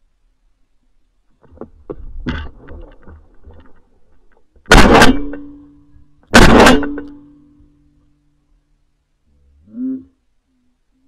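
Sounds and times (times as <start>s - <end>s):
loud shotgun shots: 4.7s - 5.6s, 6.3s - 7.1s.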